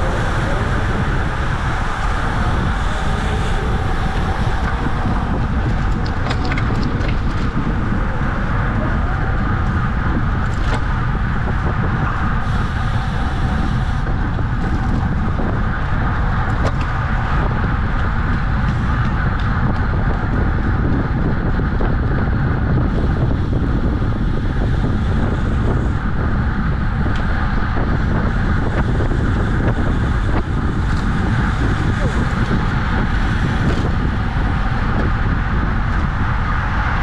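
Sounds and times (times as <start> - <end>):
wind rushing over microphone: 0.0 - 37.0.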